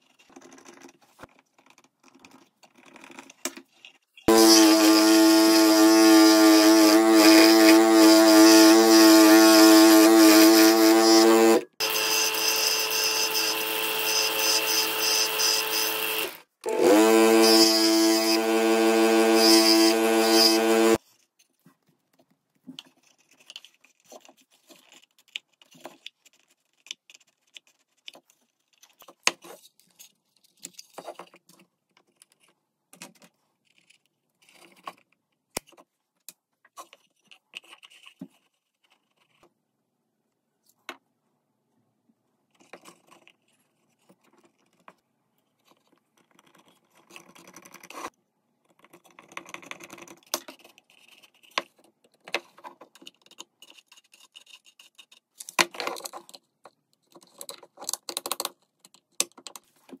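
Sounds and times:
wooden parts clicking and scraping: 0:48.7 - 1:00.0.

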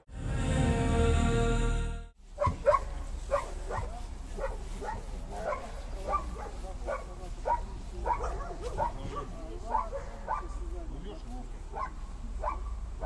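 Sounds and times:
music: 0:00.0 - 0:02.2
dog barking: 0:02.4 - 0:10.6, 0:11.7 - 0:12.8.

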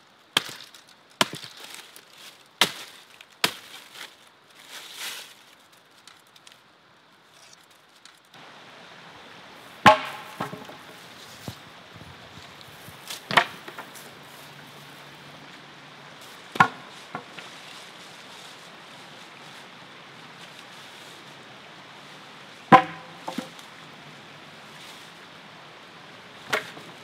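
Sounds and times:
wooden poles knocking on pavement: 0:09.8 - 0:11.6, 0:13.1 - 0:14.1, 0:16.5 - 0:17.4, 0:22.7 - 0:23.6.

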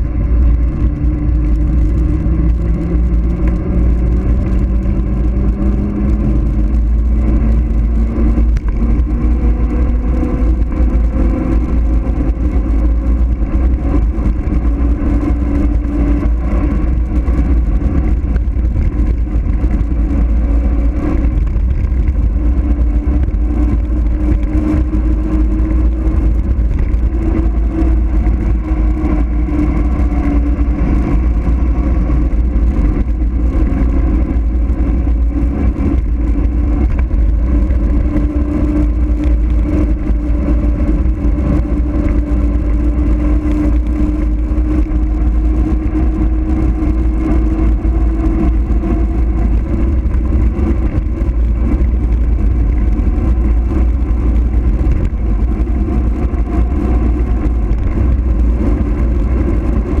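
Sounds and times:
bicycle tyres rolling hum: 0:00.0 - 1:00.0
wind rushing over microphone: 0:00.0 - 1:00.0.

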